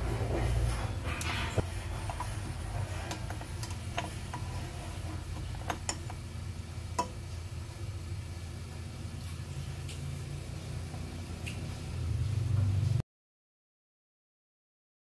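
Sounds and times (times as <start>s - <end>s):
low mixer hum: 0.0s - 13.0s
plastic shield tapping metal bowl: 7.0s - 7.2s.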